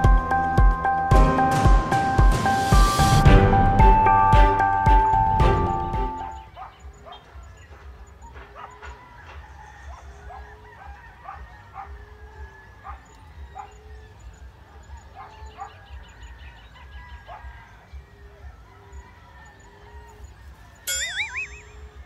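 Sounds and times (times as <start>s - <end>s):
dog barking: 6.4s - 12.0s, 12.8s - 13.8s, 14.7s - 15.9s, 17.2s - 17.6s
loud warbling rising call: 20.9s - 22.0s.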